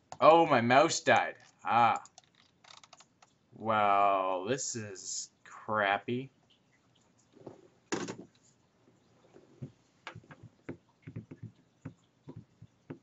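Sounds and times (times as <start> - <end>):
light clicks and knocks: 9.3 - 13.0.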